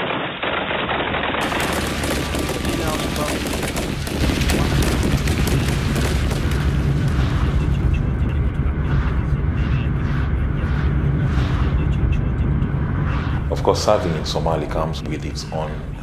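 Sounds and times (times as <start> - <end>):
rapid automatic gunfire: 0.0 - 7.6
deep low rumble: 1.2 - 16.0.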